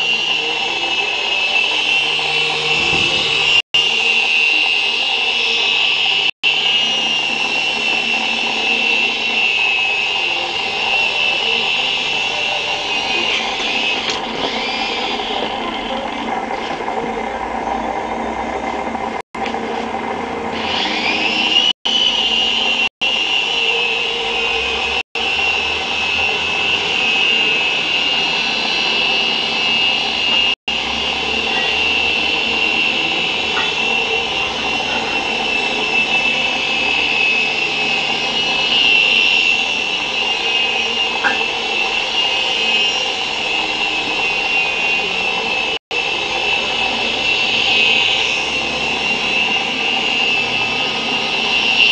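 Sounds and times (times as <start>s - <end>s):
rc helicopter rotor whine: 0.0s - 51.9s.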